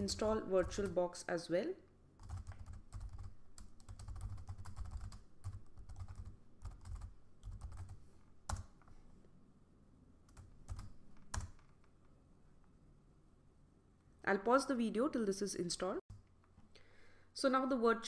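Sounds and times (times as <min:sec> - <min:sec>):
computer keyboard typing: 0:00.0 - 0:01.0, 0:02.2 - 0:08.8, 0:10.3 - 0:11.9.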